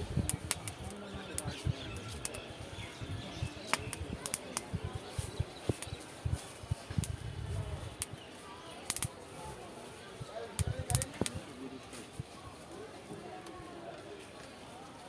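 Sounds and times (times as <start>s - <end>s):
birds chirping: 0.0s - 11.9s
charcoal crackling and popping: 0.0s - 12.8s
faint street chatter: 0.0s - 15.0s.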